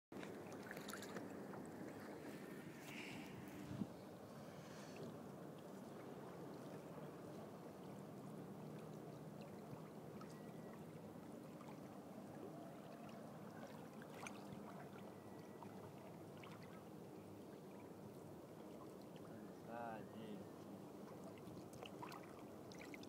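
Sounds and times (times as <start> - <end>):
water lapping against kayak: 0.2 - 23.0.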